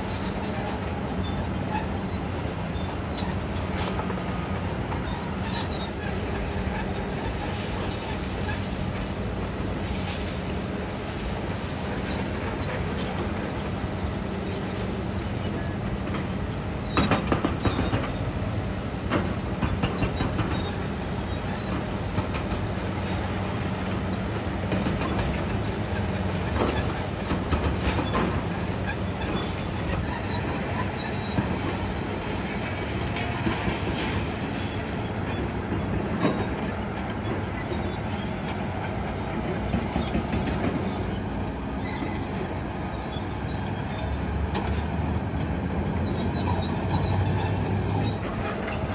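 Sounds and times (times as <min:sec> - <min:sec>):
engine hum and rumble: 0:00.0 - 0:48.9
excavator metal clanks and scraping: 0:00.0 - 0:48.9.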